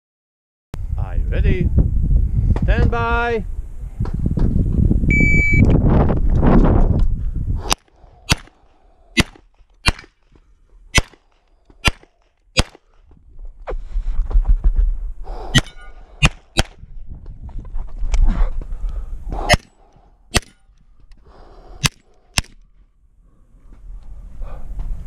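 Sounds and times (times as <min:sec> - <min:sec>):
handgun shots: 0:07.7 - 0:08.6, 0:09.2 - 0:10.2, 0:11.0 - 0:11.2, 0:11.8 - 0:12.8, 0:15.6 - 0:16.8, 0:19.5 - 0:19.7, 0:20.3 - 0:20.6, 0:21.8 - 0:22.6.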